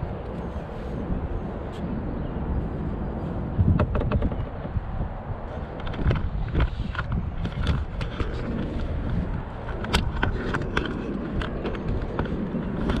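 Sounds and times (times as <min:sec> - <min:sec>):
camera handling clicks and knocks: 0:03.7 - 0:04.8, 0:05.8 - 0:13.0.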